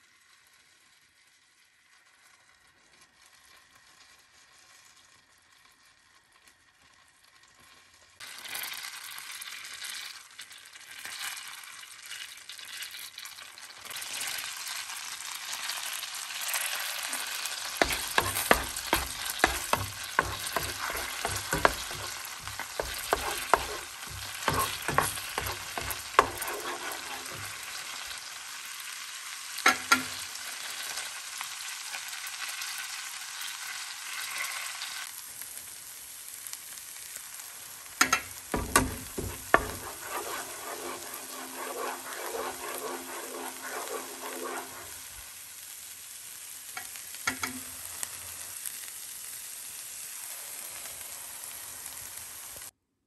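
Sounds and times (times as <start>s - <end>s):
garlic sizzling in a pan: 0.0s - 52.8s
utensil scraping a pan: 16.5s - 28.2s, 38.0s - 45.4s.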